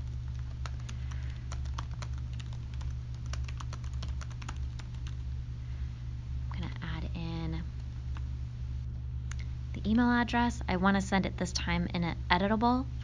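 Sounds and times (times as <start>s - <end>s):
computer keyboard typing: 0.0s - 5.2s
steady low hum: 0.0s - 13.0s.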